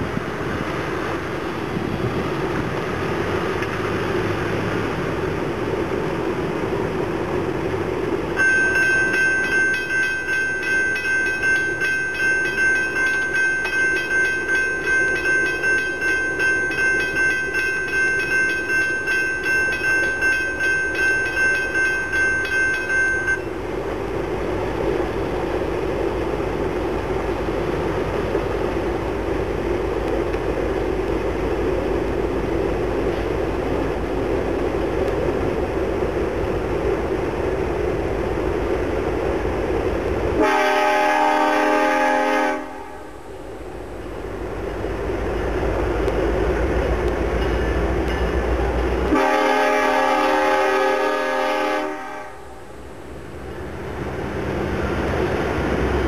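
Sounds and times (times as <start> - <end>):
wind noise: 0.0 - 3.2
freight train rumbling: 0.0 - 56.0
bell ringing: 8.4 - 23.5.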